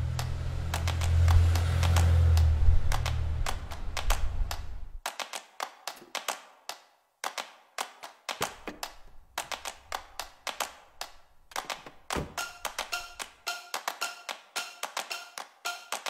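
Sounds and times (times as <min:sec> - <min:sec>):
car engine rumble: 0:00.0 - 0:05.0
sharp percussive claps: 0:00.1 - 0:16.0.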